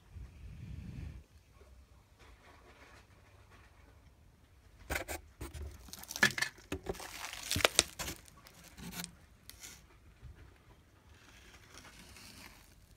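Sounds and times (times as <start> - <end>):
plastic wrapping crinkling: 5.7 - 9.8.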